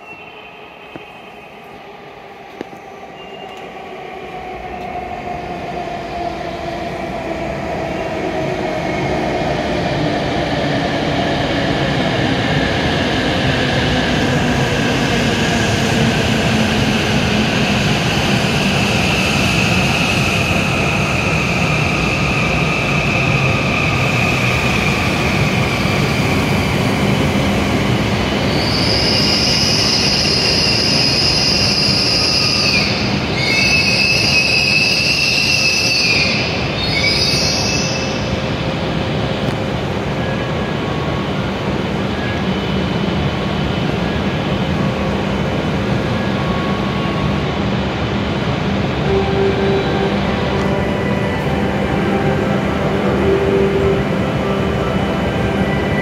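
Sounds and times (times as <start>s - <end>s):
high brake squeal: 3.1s - 3.8s.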